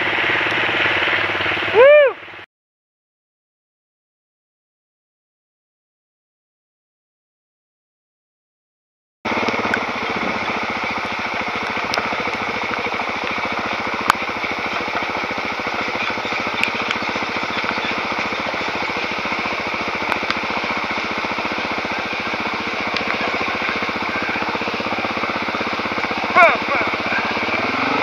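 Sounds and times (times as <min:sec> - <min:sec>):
dirt bike engine running: 0:00.0 - 0:02.4, 0:09.2 - 0:28.0
sharp ticks: 0:11.0 - 0:13.4, 0:14.0 - 0:21.2, 0:22.8 - 0:24.8.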